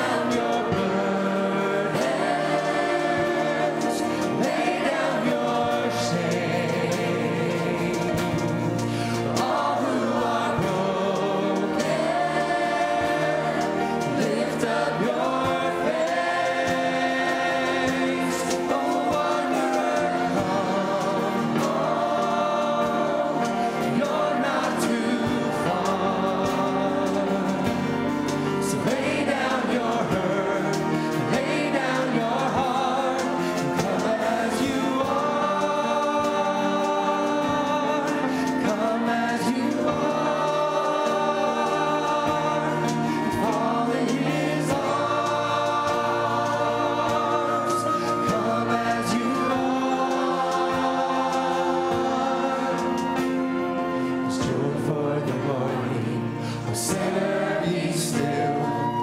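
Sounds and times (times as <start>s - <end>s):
choir singing gospel music: 0.0s - 59.0s
instrumental accompaniment: 0.0s - 59.0s.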